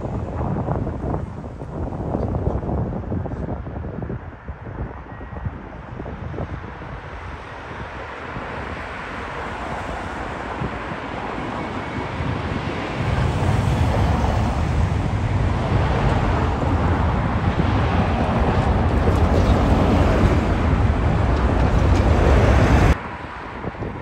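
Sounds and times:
jet engine noise: 0.0 - 24.0
wind on microphone: 0.0 - 24.0
deep rumble: 11.6 - 23.0.

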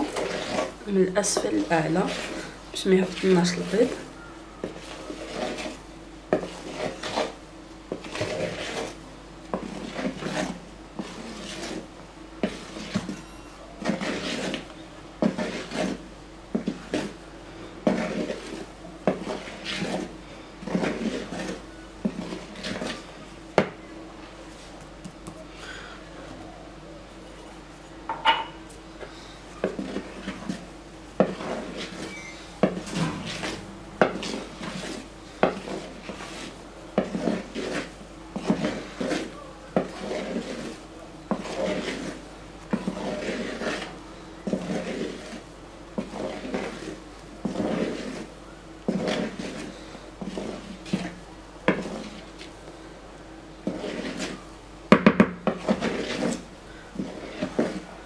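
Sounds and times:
wooden spoon scraping a bowl: 0.0 - 26.5, 27.1 - 52.7, 53.5 - 58.0.

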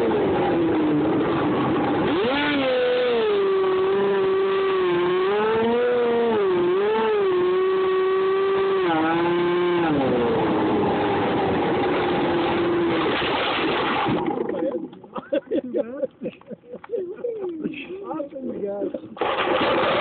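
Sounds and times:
electric motor whining: 1.9 - 13.2.

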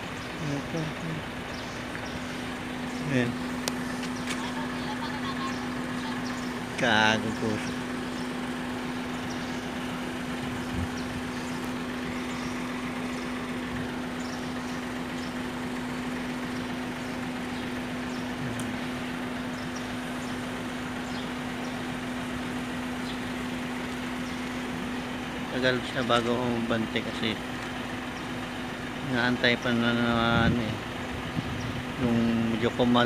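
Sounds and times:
diesel truck idling: 0.0 - 33.0.

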